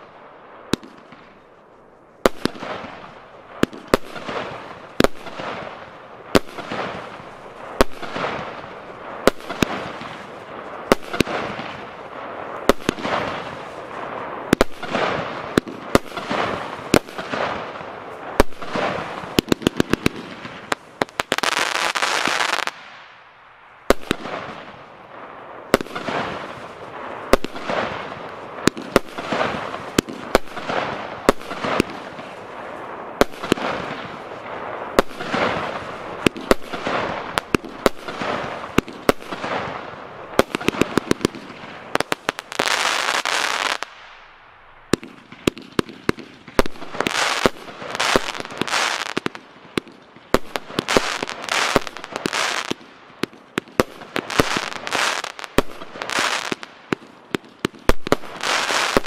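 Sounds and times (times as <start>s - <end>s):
firework bangs: 0.0s - 1.5s, 2.2s - 23.2s, 23.8s - 59.0s
crackle of bursting stars: 0.0s - 21.5s, 22.2s - 59.0s
rapid firework pops: 2.3s - 11.9s, 12.6s - 22.8s, 25.7s - 32.4s, 33.2s - 44.1s, 44.9s - 59.0s
firework hiss: 25.7s - 45.0s, 46.6s - 49.4s, 50.3s - 52.8s, 54.0s - 56.8s, 57.9s - 59.0s.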